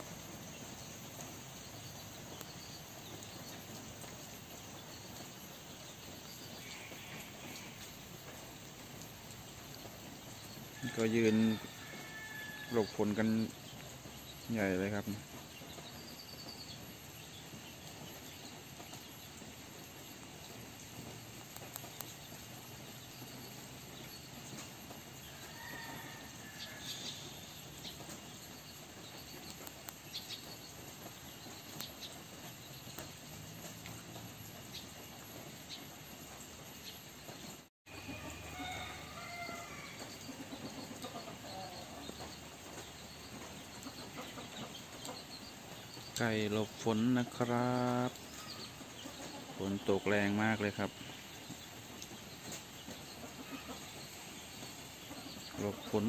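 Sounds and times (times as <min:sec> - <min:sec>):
outdoor background hiss: 0:00.0 - 0:56.0
chickens calling softly: 0:37.9 - 0:45.8, 0:48.2 - 0:50.3, 0:50.9 - 0:56.0.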